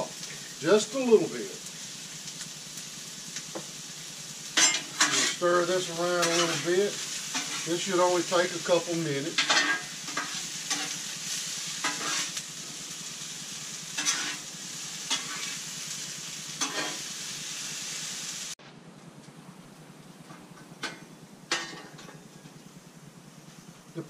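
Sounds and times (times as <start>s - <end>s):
spatula scraping griddle: 0.0s - 17.9s
vegetables sizzling on a griddle: 0.0s - 18.6s, 20.8s - 24.0s.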